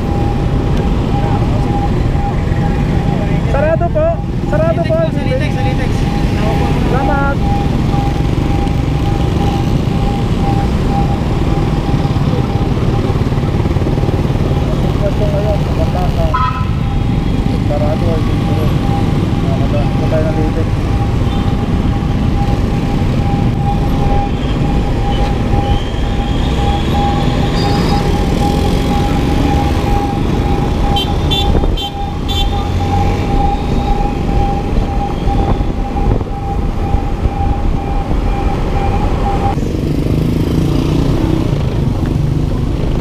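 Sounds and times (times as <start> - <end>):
steady high tone: 15.5 - 39.6.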